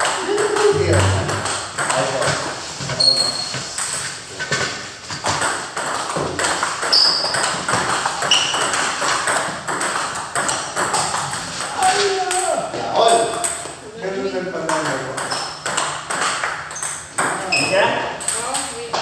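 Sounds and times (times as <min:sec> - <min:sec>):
table tennis balls clicking: 0:03.5 - 0:13.8, 0:14.6 - 0:19.0.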